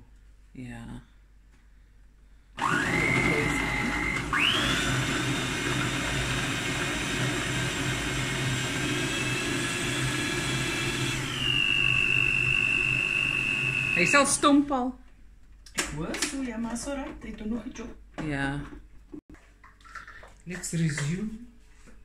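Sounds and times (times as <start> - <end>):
food processor motor whining: 2.6 - 14.3.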